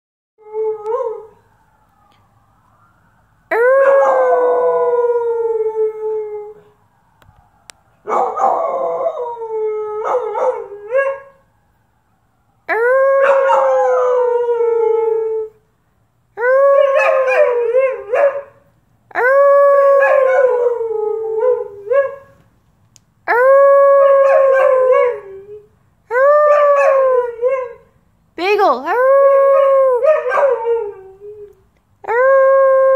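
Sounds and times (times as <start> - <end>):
dog howling: 23.3 - 27.8, 29.0 - 31.5.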